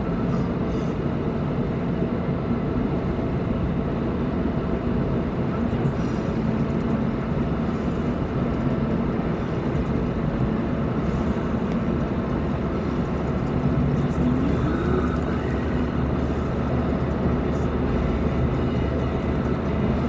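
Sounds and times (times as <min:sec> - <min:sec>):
car driving at speed: 0:00.0 - 0:20.0.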